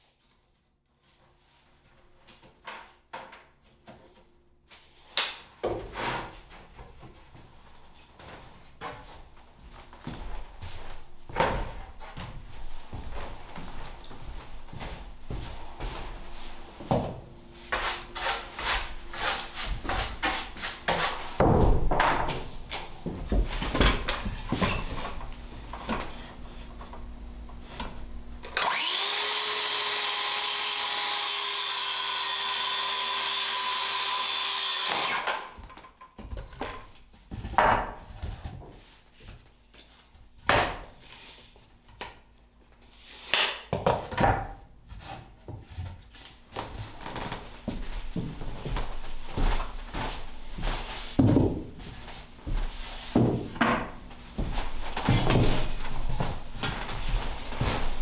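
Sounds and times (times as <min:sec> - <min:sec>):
circular saw cutting: 0:28.6 - 0:35.4.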